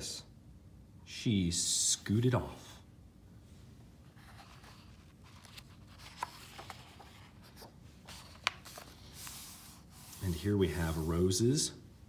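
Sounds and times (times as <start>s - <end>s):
paper rustling: 4.1s - 11.4s.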